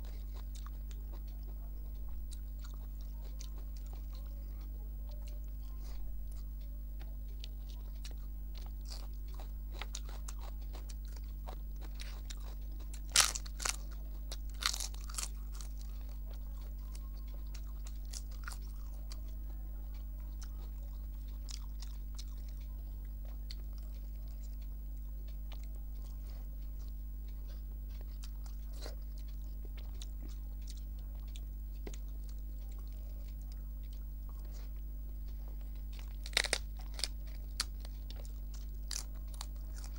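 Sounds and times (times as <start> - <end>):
person chewing: 0.0 - 39.9
steady low hum: 0.0 - 39.9
crisp papad crunching: 7.4 - 19.3, 35.6 - 39.9.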